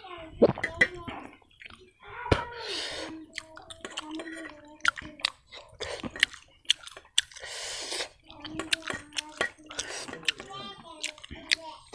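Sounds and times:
wet chewing mouth clicks: 0.4s - 1.9s, 3.2s - 11.9s.

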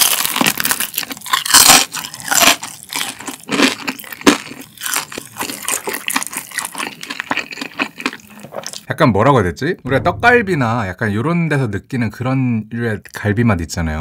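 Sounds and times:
crunching and chewing fried food: 0.0s - 8.9s.

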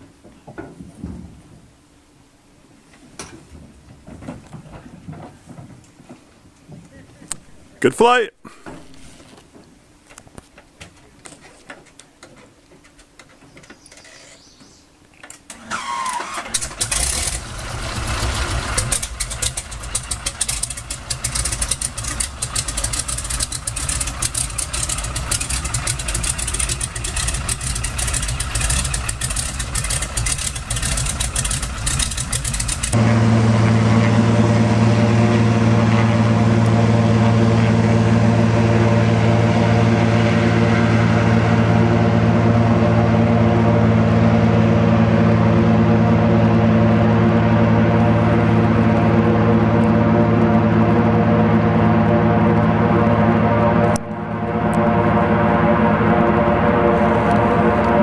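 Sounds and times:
small plane engine: 15.5s - 58.0s.

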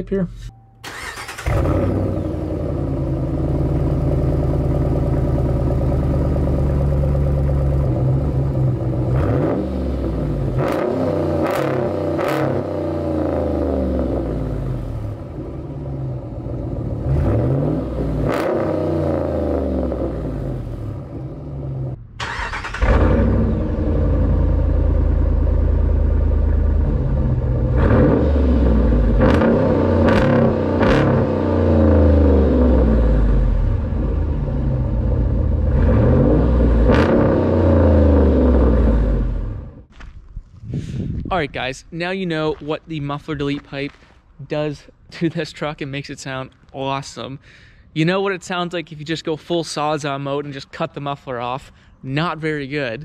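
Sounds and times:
truck engine idling and revving: 0.0s - 41.5s.

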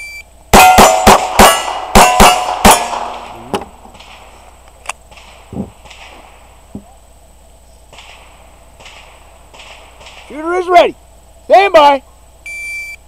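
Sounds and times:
steel plate ringing: 0.5s - 3.3s
pistol shots: 0.6s - 4.4s, 5.0s - 6.6s, 7.9s - 10.4s.

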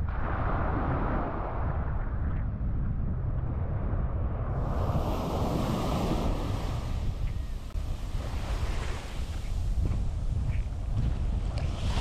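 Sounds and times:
wind buffeting microphone: 0.0s - 12.0s
waves washing onto beach: 4.5s - 12.0s.

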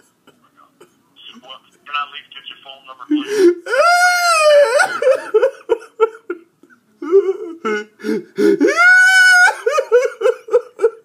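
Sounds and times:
man fake-crying in high voice: 3.1s - 5.2s, 8.6s - 11.0s.

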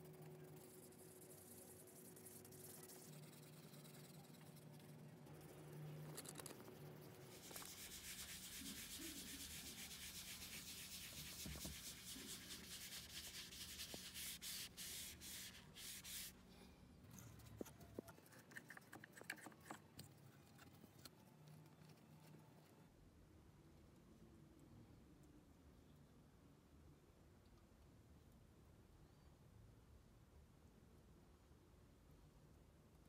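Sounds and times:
light clicks and scrapes: 0.0s - 7.8s, 17.0s - 22.8s
cloth rubbing on metal: 6.3s - 16.4s.

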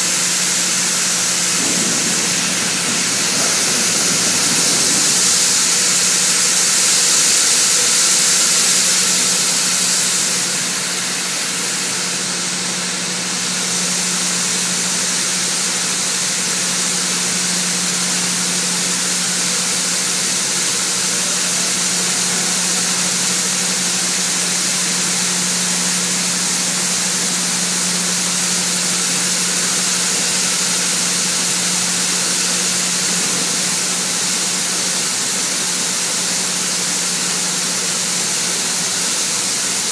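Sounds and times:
low machinery hum: 0.0s - 19.7s
grain pouring into trailer: 0.0s - 39.9s.

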